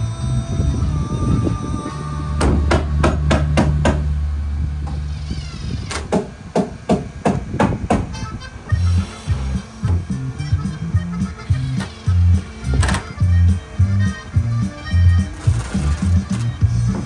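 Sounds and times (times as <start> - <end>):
hammer striking deck boards: 2.4 - 4.1, 6.0 - 8.1.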